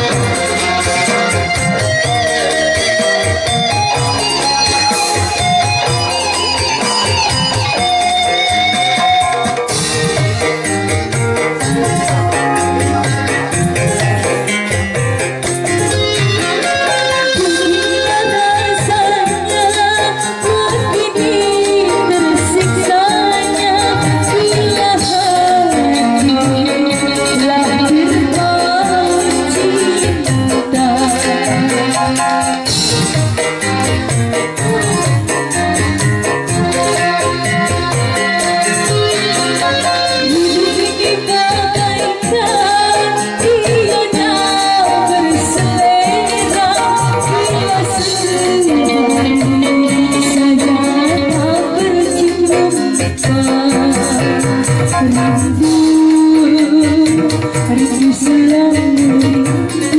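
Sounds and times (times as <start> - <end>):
electric guitar: 0.0 - 59.9
electronic keyboard: 0.0 - 59.9
hand drum: 0.0 - 59.9
woman singing: 15.8 - 32.8, 36.7 - 59.9.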